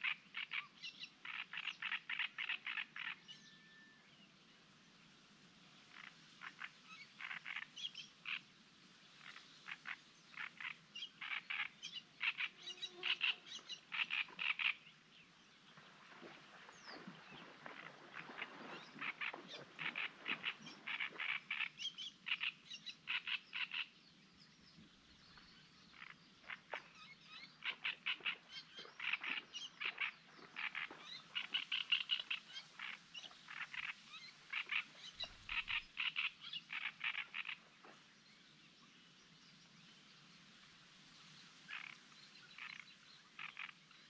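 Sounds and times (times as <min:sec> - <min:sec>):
frogs croaking: 0:05.9 - 0:08.4, 0:09.2 - 0:14.8, 0:16.2 - 0:23.9, 0:25.9 - 0:27.0, 0:27.6 - 0:37.7, 0:41.7 - 0:42.0, 0:42.6 - 0:43.8.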